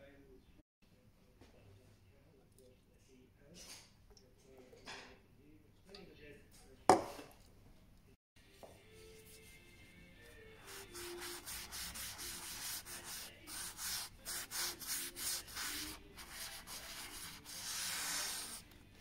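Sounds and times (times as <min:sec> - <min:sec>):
cloth scrubbing metal plate: 0:10.6 - 0:18.6.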